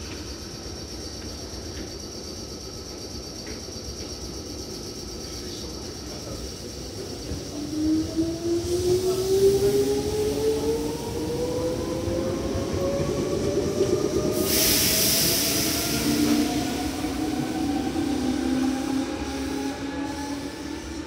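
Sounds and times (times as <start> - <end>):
train motor whine: 7.3 - 21.0
sharp hiss burst: 14.3 - 17.3.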